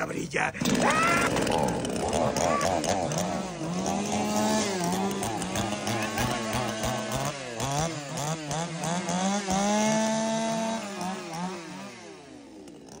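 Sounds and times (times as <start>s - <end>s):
chainsaw revving: 0.0s - 13.0s.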